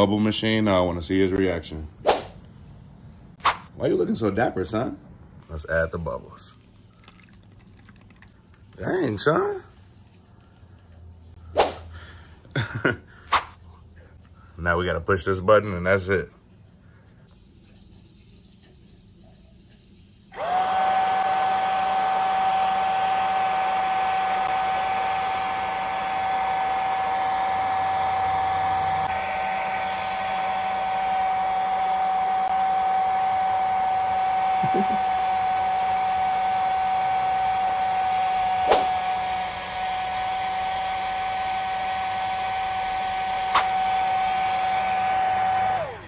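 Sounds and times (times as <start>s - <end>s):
bubble machine fan whining: 17.6s - 46.0s.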